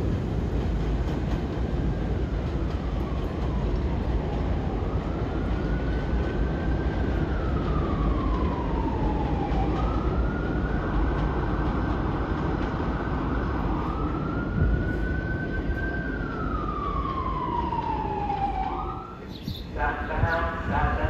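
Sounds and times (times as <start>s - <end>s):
siren wailing: 3.1s - 11.2s, 13.3s - 19.3s.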